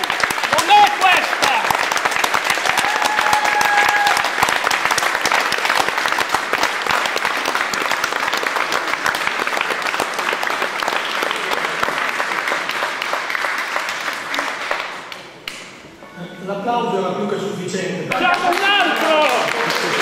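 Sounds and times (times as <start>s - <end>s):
crowd applauding: 0.0s - 15.4s, 18.1s - 20.0s.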